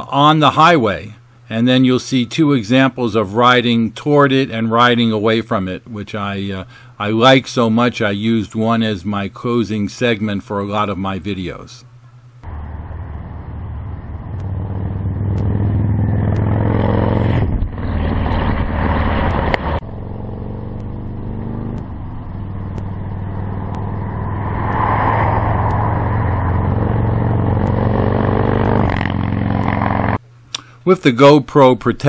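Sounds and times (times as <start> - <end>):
motorcycle riding past: 12.5 - 30.2.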